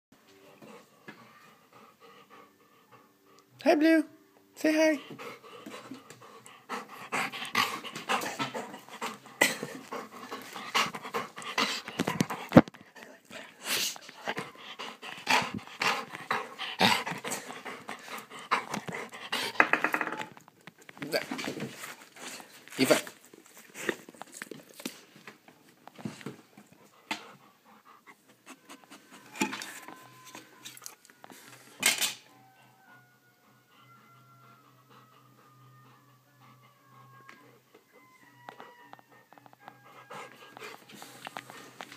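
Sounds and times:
dog panting: 0.3 - 3.6, 4.6 - 19.9, 25.9 - 31.4, 32.5 - 41.9.

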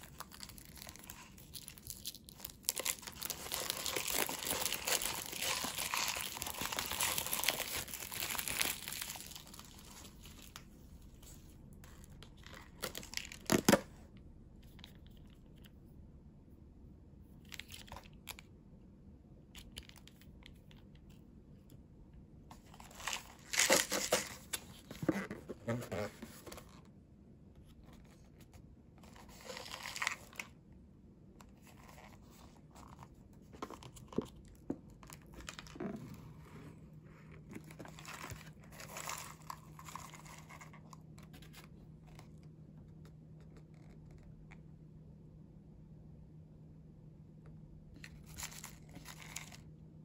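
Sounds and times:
plastic wrap crinkling and tearing: 0.0 - 10.7, 22.8 - 24.8.

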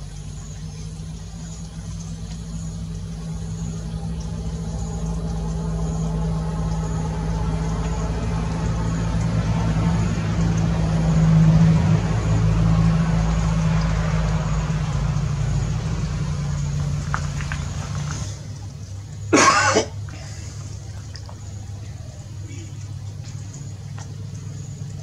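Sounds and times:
engine idling: 0.0 - 25.0.

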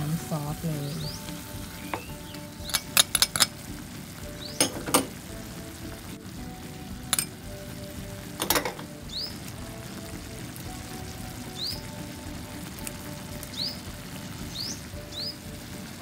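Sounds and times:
chicken sizzling in frying pan: 0.0 - 16.0
metal spoon clinking pan: 2.6 - 3.5, 4.6 - 5.1, 7.1 - 7.4, 8.4 - 8.9.

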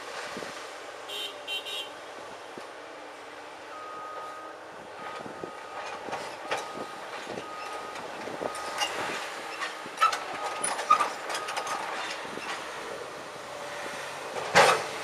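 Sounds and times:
excavator metallic clanks: 5.2 - 12.8, 14.3 - 15.0.

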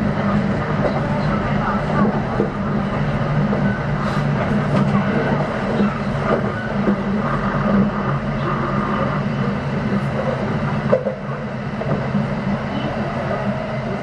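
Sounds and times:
train wheels rumbling on rail: 0.0 - 14.0.

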